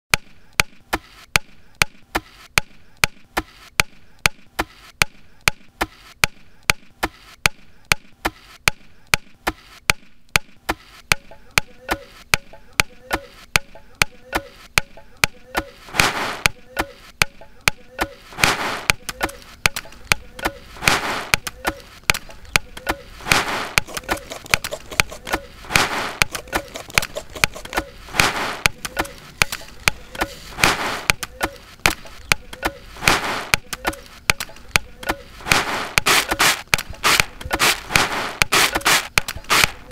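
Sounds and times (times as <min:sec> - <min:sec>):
wooden chops in a beat: 0:00.1 - 0:39.9
rasping swish: 0:15.8 - 0:16.5, 0:18.3 - 0:19.6, 0:20.6 - 0:22.4, 0:23.1 - 0:32.2, 0:32.9 - 0:34.2, 0:35.3 - 0:39.9.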